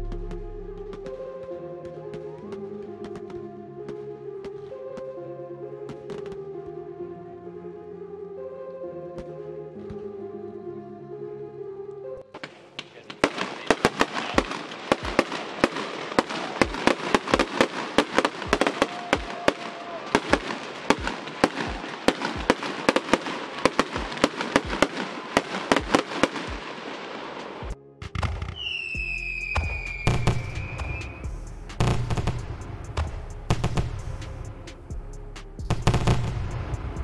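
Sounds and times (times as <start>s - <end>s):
fireworks popping and crackling: 12.4s - 28.8s
steady whistle: 28.5s - 31.6s.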